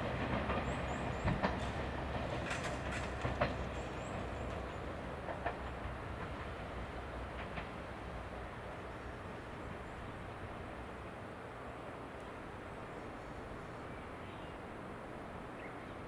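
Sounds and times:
train wheels clicking over rail joints: 0.0s - 8.4s.

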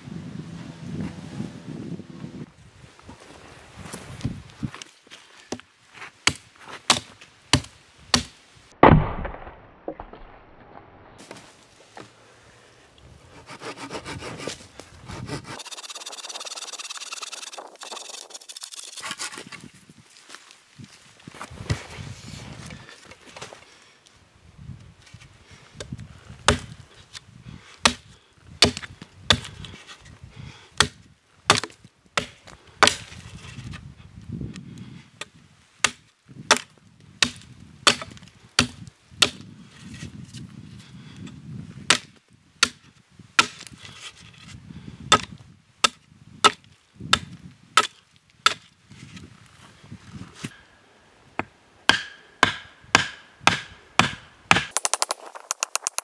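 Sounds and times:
wood being chopped: 6.2s - 10.4s, 26.5s - 26.7s, 27.8s - 29.6s, 30.8s - 33.1s, 35.8s - 39.5s, 41.9s - 43.8s, 45.1s - 48.7s, 51.4s - 56.0s.

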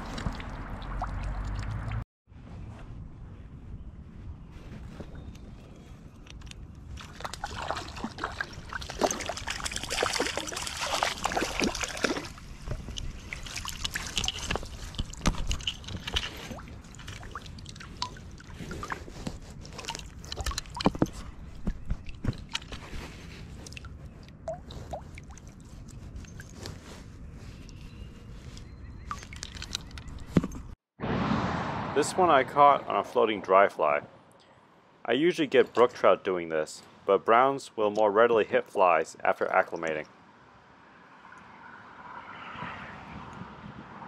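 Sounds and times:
water dripping: 0.0s - 2.0s
fish splashing in water: 7.0s - 15.6s.

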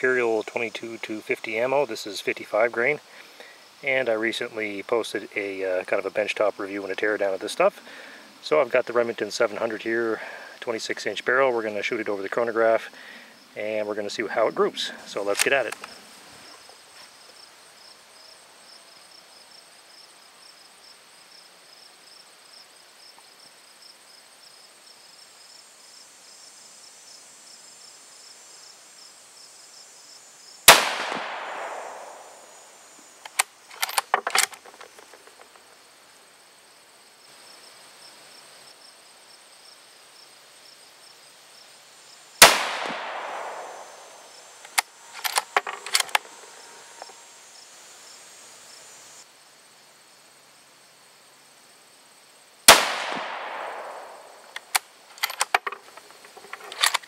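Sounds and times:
rifle bolt metallic clicks: 15.3s - 15.9s, 30.7s - 32.2s, 33.2s - 35.4s, 42.4s - 43.8s, 44.6s - 46.3s, 52.7s - 57.0s
rifle shots with echo: 30.7s - 32.5s, 42.4s - 44.3s, 52.7s - 54.5s.

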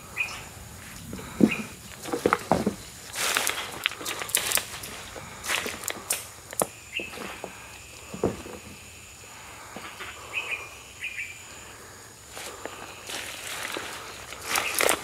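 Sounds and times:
bird chirp: 0.0s - 0.5s, 1.4s - 1.8s, 6.8s - 7.2s, 9.8s - 12.0s
dry leaves and twigs rustling: 0.0s - 15.0s
soft thuds: 1.2s - 2.9s, 7.0s - 8.8s
twigs snapping: 1.4s - 7.5s, 12.4s - 15.0s.

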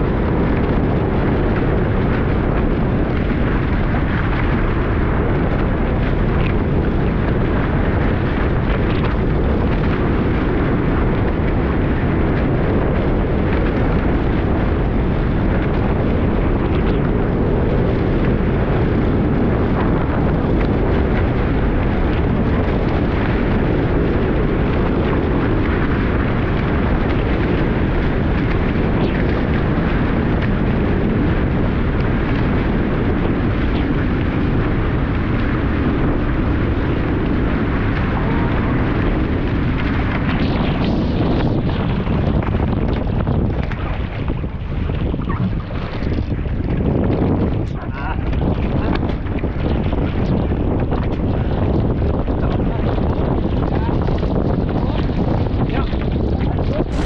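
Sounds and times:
strong wind buffeting microphone: 0.0s - 57.0s.

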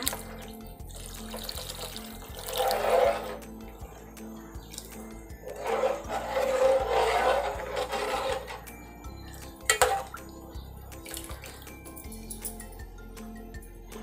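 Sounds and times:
water pouring into pot: 0.0s - 3.8s, 4.7s - 12.0s
soft background music: 0.0s - 14.0s
ladle clinking on metal pot: 4.7s - 10.4s.

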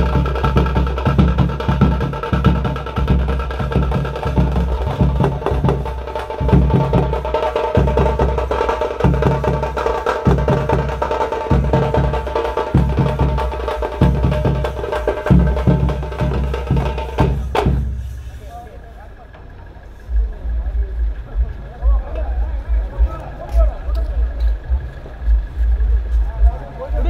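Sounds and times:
drum band playing fast rhythm: 0.0s - 18.7s.

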